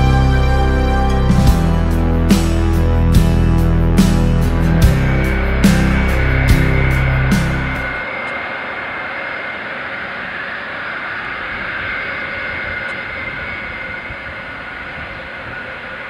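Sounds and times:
high engine whine: 0.0s - 16.0s
jet engines running: 0.0s - 16.0s.

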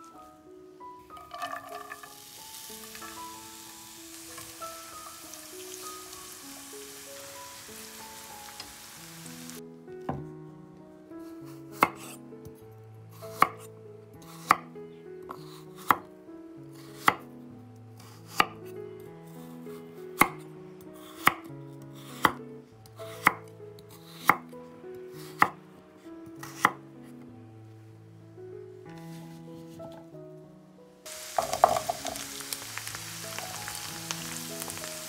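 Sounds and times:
soft background music: 0.0s - 35.0s
knife chopping on wooden board: 11.8s - 12.2s, 23.1s - 23.4s.

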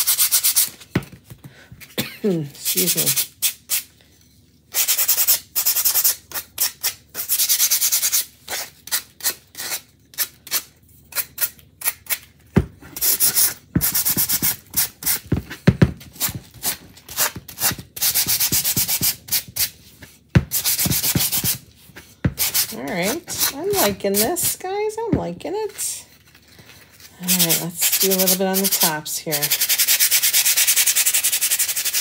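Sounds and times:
sanding block scraping wood: 27.3s - 32.0s.

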